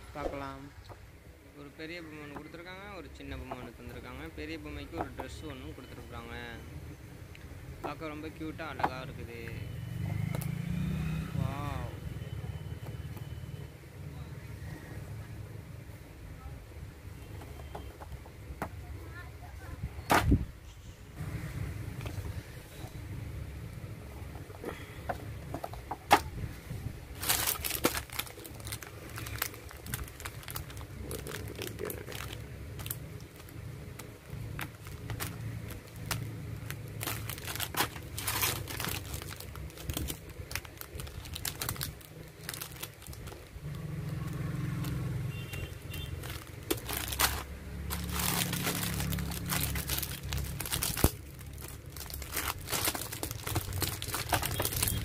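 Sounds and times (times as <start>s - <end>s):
plastic bags crinkling: 27.1s - 55.0s.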